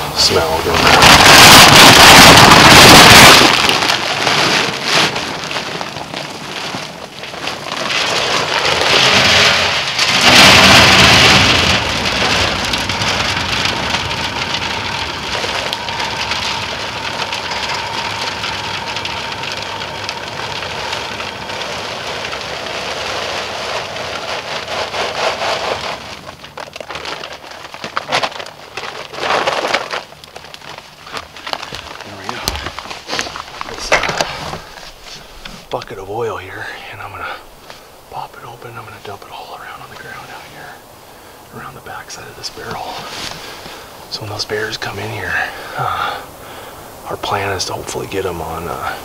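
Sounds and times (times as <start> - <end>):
pellets rattling into metal drum: 0.0 - 36.7.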